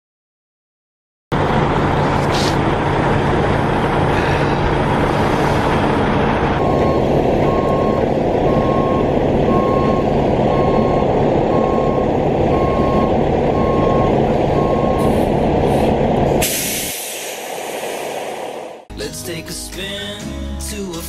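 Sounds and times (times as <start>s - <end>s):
diesel engine running: 1.3s - 21.0s
backup alarm beeping: 6.6s - 15.3s
loud burst of hiss: 16.4s - 18.8s.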